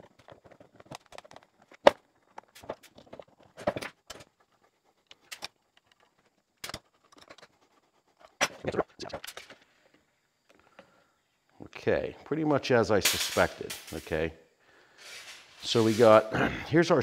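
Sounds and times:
plastic parts being handled: 0.0 - 4.4.

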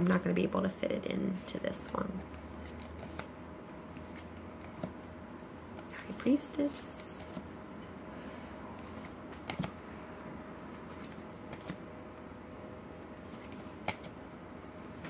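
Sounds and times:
faint steady hum: 0.0 - 15.0
cards handled: 2.3 - 3.3, 3.9 - 5.0, 10.7 - 11.8, 13.2 - 14.2.

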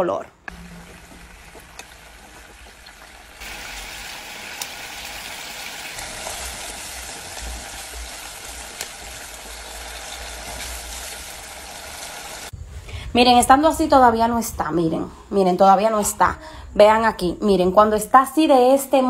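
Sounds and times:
coconut milk boiling and sizzling: 0.5 - 12.6.

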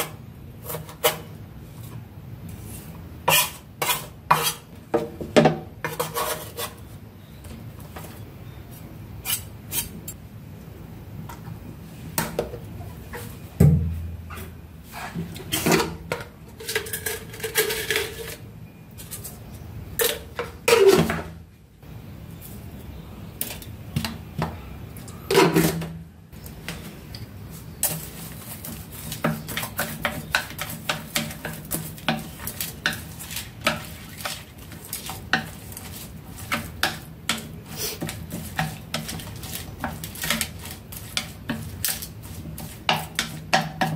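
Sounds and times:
spoon adding seasoning: 26.4 - 43.9
chopsticks tapping plate: 27.8 - 43.9.

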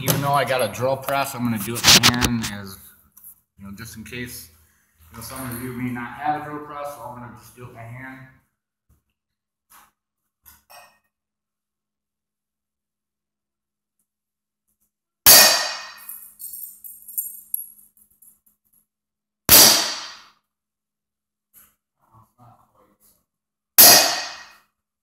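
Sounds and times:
hammer striking center punch: 15.3 - 16.0, 19.5 - 20.3, 23.8 - 24.6
light metal clinks: 16.0 - 18.5.

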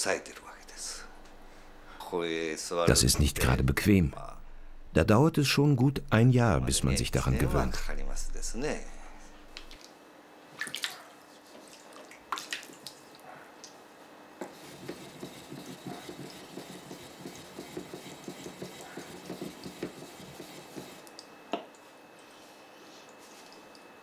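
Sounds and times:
water splashing in basin: 10.6 - 11.1, 11.8 - 13.1
rhythmic rubbing on whetstone: 14.4 - 21.2, 22.2 - 23.6.

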